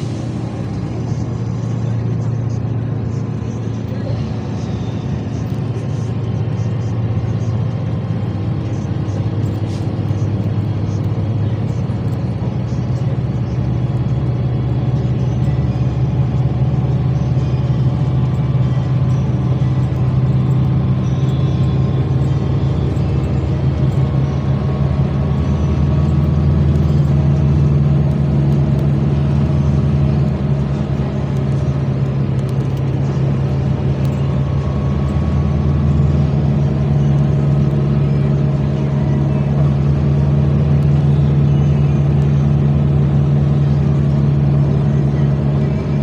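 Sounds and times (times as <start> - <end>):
road noise: 0.0 - 46.0
vehicle engine drone: 0.0 - 46.0.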